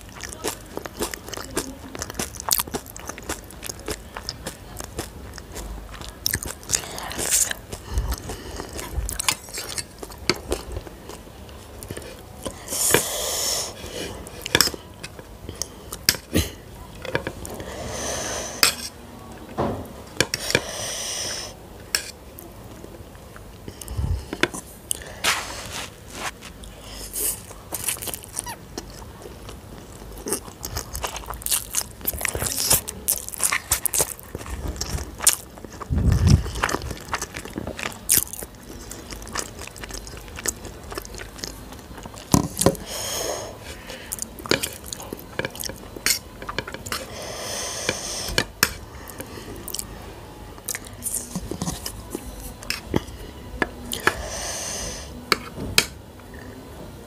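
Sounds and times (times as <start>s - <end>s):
chewing noodles: 0.0s - 17.8s, 23.3s - 49.9s.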